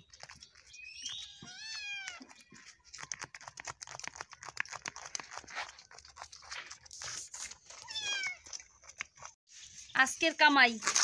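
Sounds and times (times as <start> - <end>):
kitten meowing: 1.1 - 2.3, 7.8 - 8.4.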